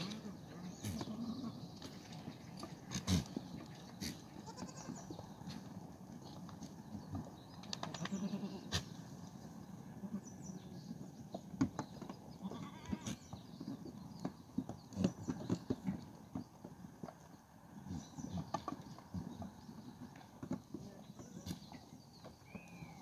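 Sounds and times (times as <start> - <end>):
goats bleating: 4.0 - 5.1, 8.0 - 8.8, 12.4 - 13.2
hooves tapping on metal trough: 11.3 - 17.3.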